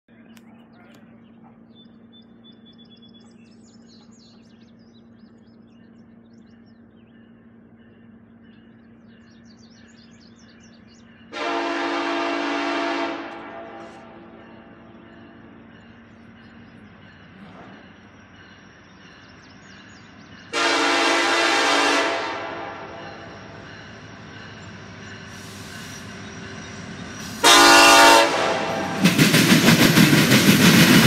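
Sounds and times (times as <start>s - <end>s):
birds chirping: 0.1s - 29.6s
locomotive air horn blast: 11.3s - 14.3s, 20.5s - 23.4s, 27.2s - 29.0s.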